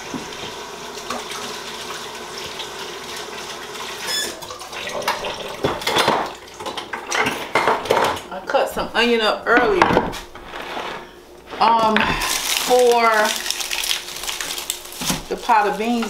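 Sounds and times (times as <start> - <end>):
faucet water splashing into sink: 0.3 - 7.0
kitchenware clattering on counter: 5.0 - 8.3.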